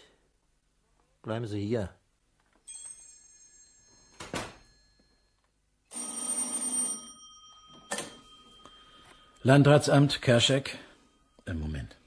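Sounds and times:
telephone bell ringing: 2.7s - 11.4s.

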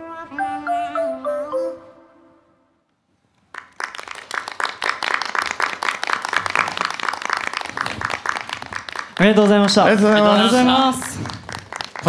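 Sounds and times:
song ending: 0.0s - 2.8s
small group clapping: 3.3s - 12.0s.

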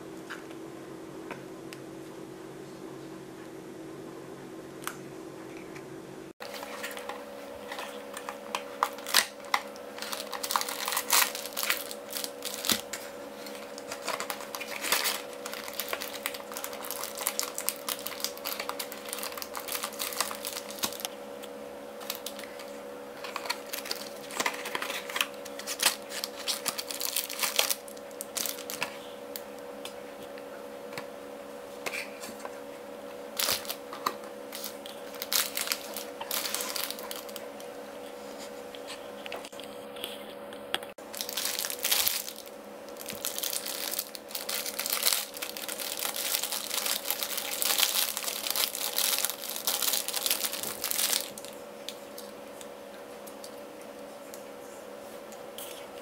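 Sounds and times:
steady low hum: 0.0s - 56.0s
plastic bags crinkling: 6.4s - 21.2s, 22.0s - 29.4s, 33.3s - 37.7s, 41.0s - 52.3s.

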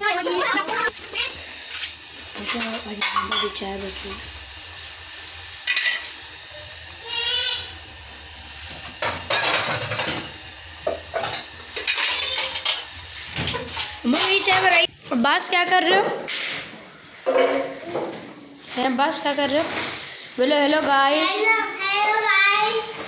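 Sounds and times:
tea simmering and bubbling: 0.2s - 14.5s
spoon stirring and knocking pan: 2.4s - 4.1s.

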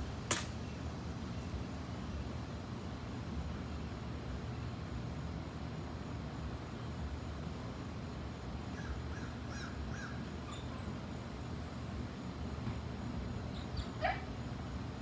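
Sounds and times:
birds calling: 8.6s - 11.5s, 13.3s - 14.5s.

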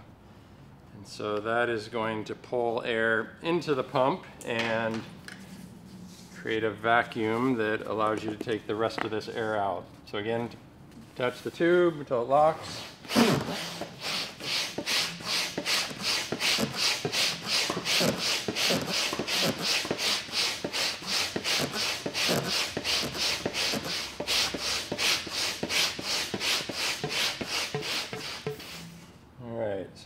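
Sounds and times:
manual air pump strokes: 12.6s - 29.2s.

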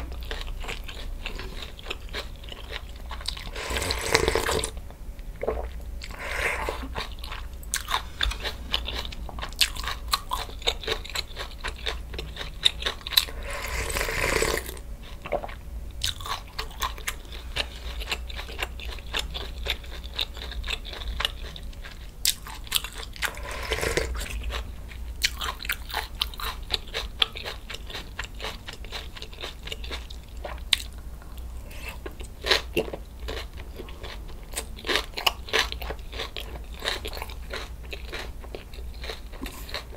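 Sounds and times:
crunching and chewing food: 0.0s - 4.8s, 5.4s - 39.9s
slurping soup: 3.4s - 4.8s, 5.4s - 10.0s, 13.2s - 15.5s, 23.2s - 24.3s.

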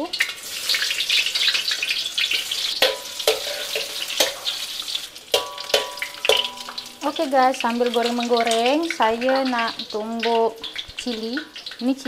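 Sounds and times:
food sizzling in hot oil: 0.0s - 12.0s
spatula knocking on a wok: 2.8s - 4.4s, 5.3s - 7.0s.

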